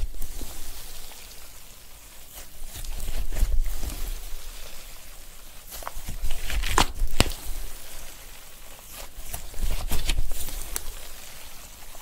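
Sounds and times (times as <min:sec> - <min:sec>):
slime squelching: 0:02.0 - 0:12.0
slime air pockets popping: 0:05.8 - 0:07.6.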